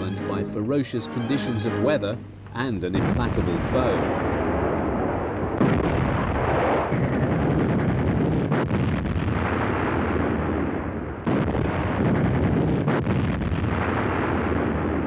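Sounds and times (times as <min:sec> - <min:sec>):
heavy gun reports: 0:00.0 - 0:04.8.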